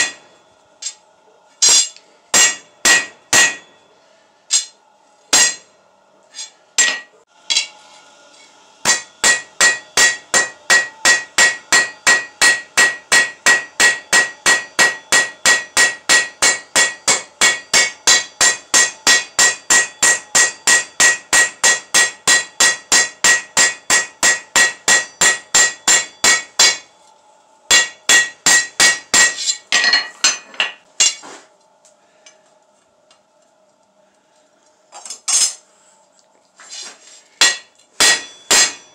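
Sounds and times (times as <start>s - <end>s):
anvil ringing ping: 0.0s - 1.0s, 1.6s - 3.9s, 5.4s - 5.7s, 8.8s - 26.9s, 27.7s - 30.4s, 37.4s - 38.9s
hammer striking metal on anvil: 0.0s - 1.0s, 1.6s - 3.9s, 4.5s - 5.7s, 6.4s - 7.8s, 8.8s - 26.9s, 27.7s - 31.3s, 37.4s - 38.9s.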